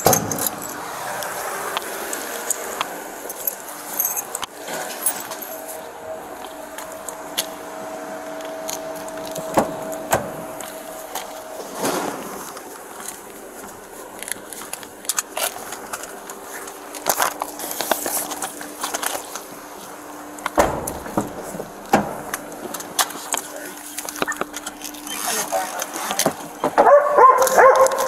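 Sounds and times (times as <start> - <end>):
papers and clothing rustling: 8.4 - 20.4, 21.3 - 28.0
heavy thumps: 20.5 - 22.4.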